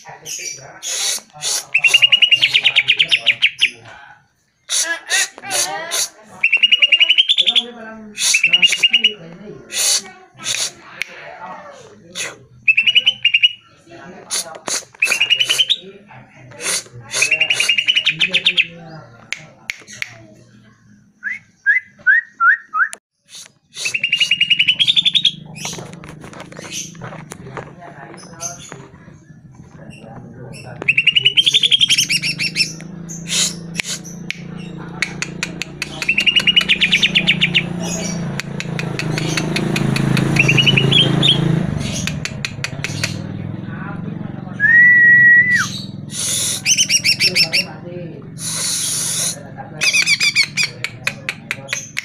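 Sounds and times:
bird singing trills and whistles: 0.4 - 3.8, 6.4 - 9.2, 12.6 - 13.7, 15.0 - 15.8, 17.1 - 18.7, 21.2 - 25.8, 30.6 - 43.2, 44.6 - 47.7, 48.4 - 52.0.

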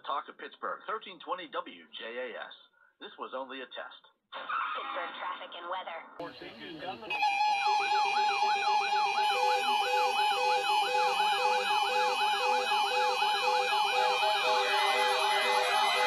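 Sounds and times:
steady alarm tones: 6.4 - 16.0
siren-like alarm tones sweeping: 6.9 - 16.0.

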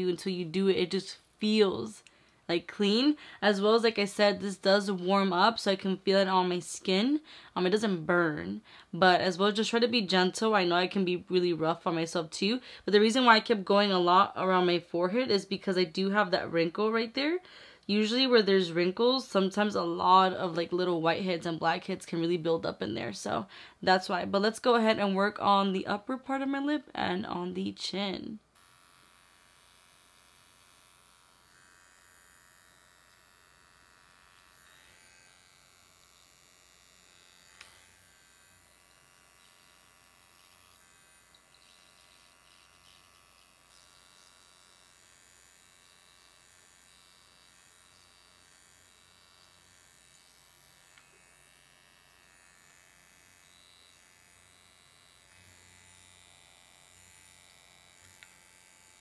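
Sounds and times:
electric skin spatula buzzing: 0.0 - 59.0.

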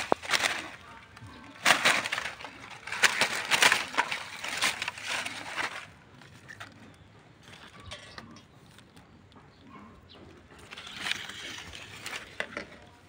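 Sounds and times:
dry leaves crunching and rustling: 0.0 - 7.9, 10.6 - 13.0.

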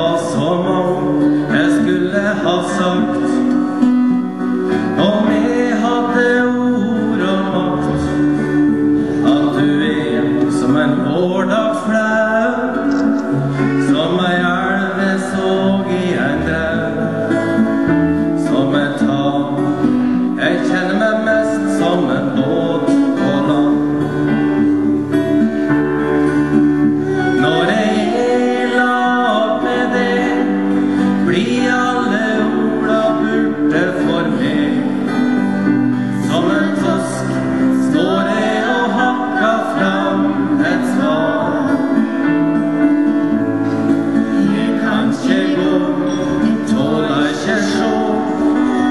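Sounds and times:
person singing: 0.0 - 25.4, 26.0 - 48.9
acoustic guitar strumming: 0.0 - 48.9.

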